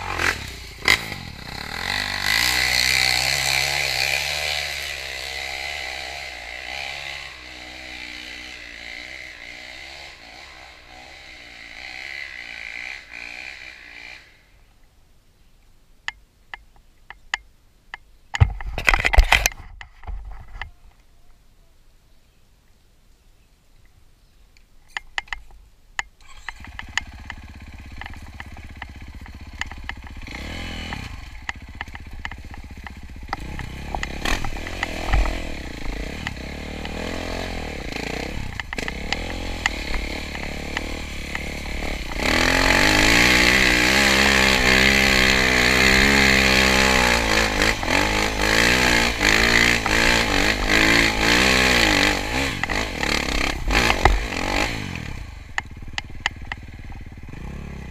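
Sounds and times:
dirt bike engine revving: 0.0 - 14.5, 26.2 - 57.9.

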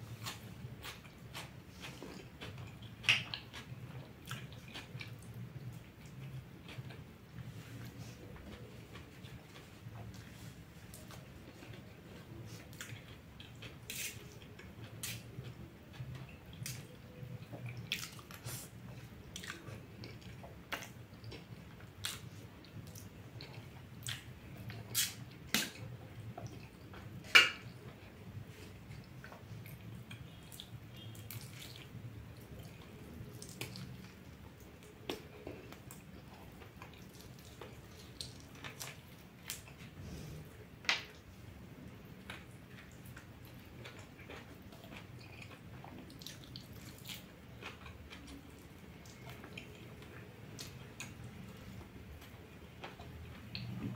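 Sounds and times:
wet chewing and lip smacks: 29.2 - 34.2, 34.8 - 39.8, 42.3 - 51.2.

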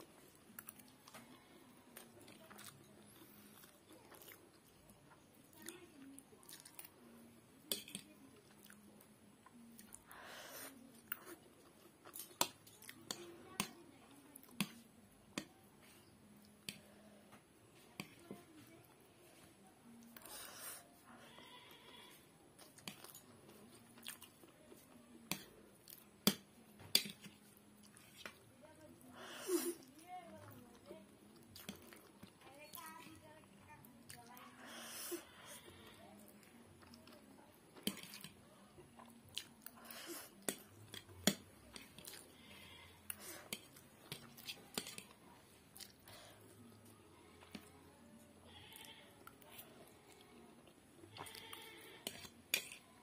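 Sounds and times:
soft chewing: 0.0 - 53.0
fork clicking on plate: 52.0 - 52.8.

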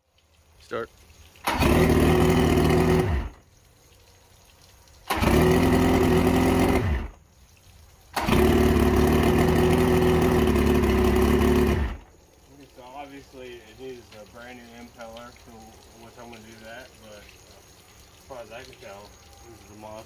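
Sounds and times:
outboard engine starting and running: 1.3 - 3.4, 5.0 - 7.2, 8.1 - 12.1.

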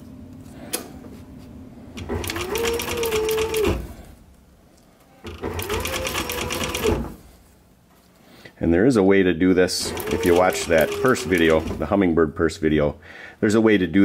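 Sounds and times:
sewing machine stitching: 2.0 - 4.1, 5.2 - 7.3, 9.8 - 11.9.

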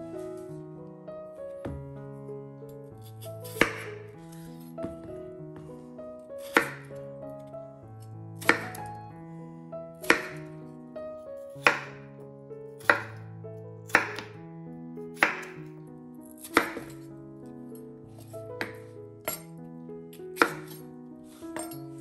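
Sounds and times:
soft background music: 0.0 - 22.0
knife chopping on wooden board: 3.1 - 4.1, 4.8 - 5.7, 6.4 - 7.0, 8.4 - 8.9, 10.0 - 10.5, 11.6 - 12.0, 12.8 - 13.2, 13.9 - 14.4, 15.2 - 15.6, 16.3 - 17.0, 18.2 - 19.5, 20.4 - 20.8.

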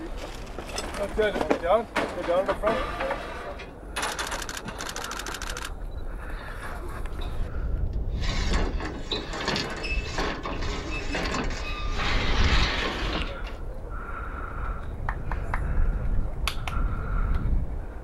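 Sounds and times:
ratchet-like clicking rattle: 4.0 - 5.7.

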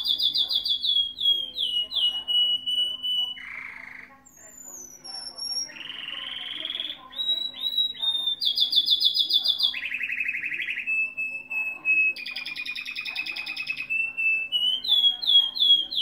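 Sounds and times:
canary singing trills: 0.0 - 16.0.

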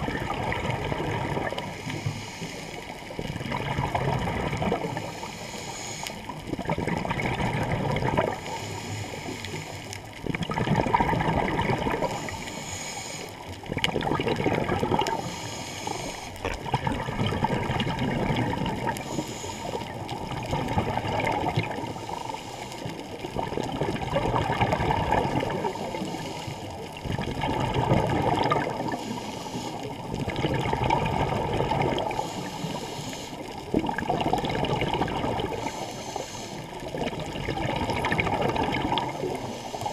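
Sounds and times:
bubbles gurgling underwater: 0.0 - 2.2, 2.8 - 5.4, 6.2 - 12.5, 13.4 - 39.9
diver breathing through regulator: 1.4 - 3.3, 4.7 - 6.5, 8.2 - 10.0, 11.8 - 13.7, 14.8 - 16.5, 18.6 - 20.2, 21.0 - 23.3, 25.4 - 27.0, 28.3 - 30.2, 32.0 - 33.9, 35.2 - 37.3, 38.8 - 39.9.

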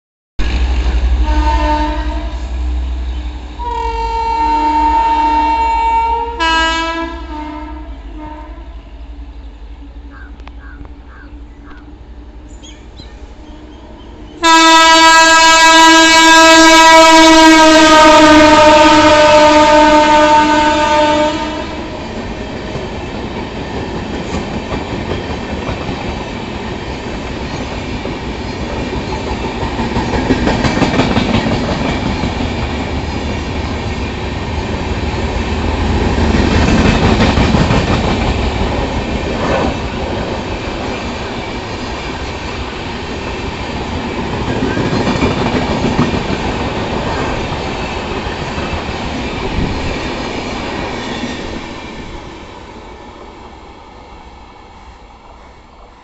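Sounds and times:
train coaches rumbling past: 0.4 - 56.0
locomotive horn blaring: 1.0 - 9.0, 14.4 - 22.0.

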